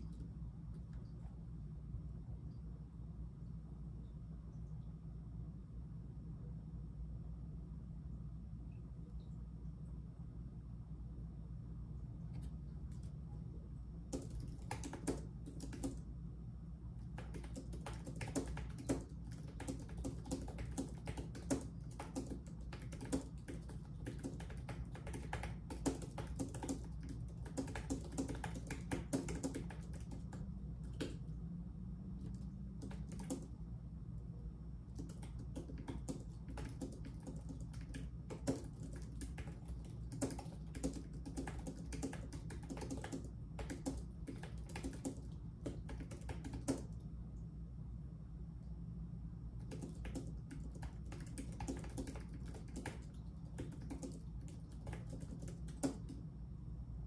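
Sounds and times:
low steady hum: 0.0s - 57.0s
typing on a computer keyboard: 12.4s - 13.2s, 14.0s - 16.0s, 17.0s - 31.4s, 32.2s - 33.6s, 34.9s - 47.1s, 49.6s - 56.3s.

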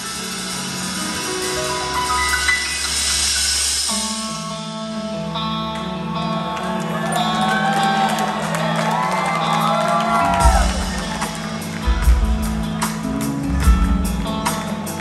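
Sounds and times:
keyboard and electric guitar chords: 0.0s - 15.0s
audience whooping and whistling: 6.8s - 11.6s
heavy drum beats: 10.2s - 15.0s.

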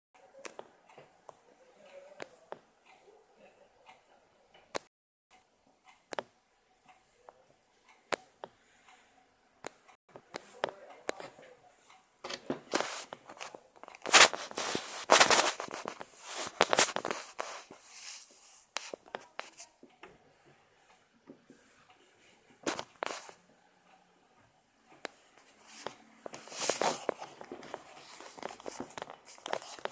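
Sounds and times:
rustling and crunching: 12.7s - 18.3s, 25.7s - 29.9s.

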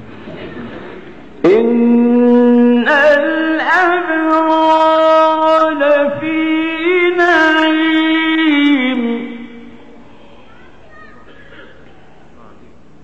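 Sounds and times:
man reciting melodically: 1.4s - 10.0s.

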